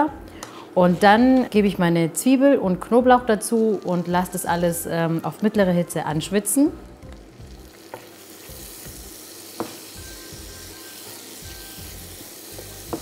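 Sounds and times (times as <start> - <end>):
onions sizzling in a frying pan: 7.0 - 13.0
wooden spoon knocking on pan: 9.6 - 9.8, 12.6 - 13.0.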